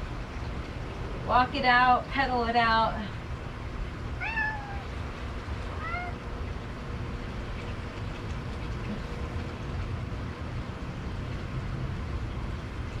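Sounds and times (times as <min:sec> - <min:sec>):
cat meowing: 0:04.2 - 0:04.9, 0:05.8 - 0:06.2.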